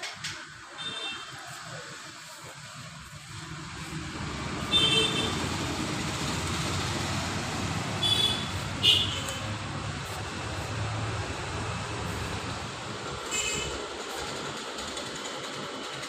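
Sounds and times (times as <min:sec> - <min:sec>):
road traffic rumble: 0:00.0 - 0:16.0
short high vehicle horn toots: 0:13.3 - 0:13.8.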